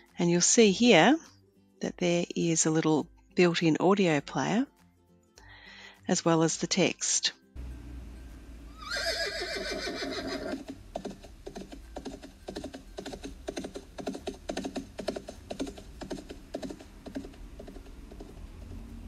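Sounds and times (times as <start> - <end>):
horse whinnying: 8.7 - 10.7
hooves clip-clopping: 8.8 - 19.0.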